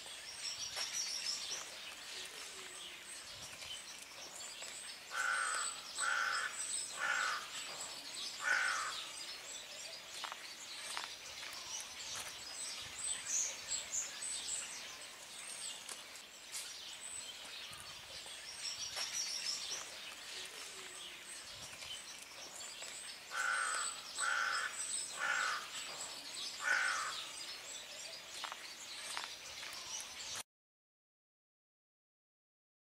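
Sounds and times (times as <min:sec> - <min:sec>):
small birds chirping: 0:00.0 - 0:30.4
bird calling: 0:05.1 - 0:09.2, 0:22.8 - 0:27.4.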